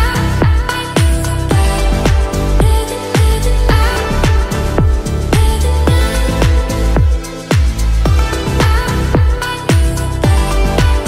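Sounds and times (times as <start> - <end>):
electronic pop music: 0.0 - 11.0.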